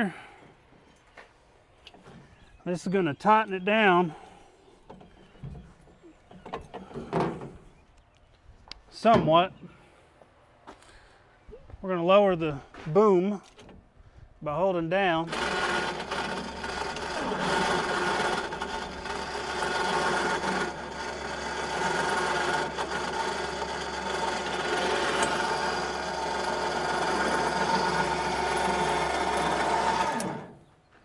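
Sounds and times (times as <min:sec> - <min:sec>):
electric winch whirring: 0:15.2 - 0:30.7.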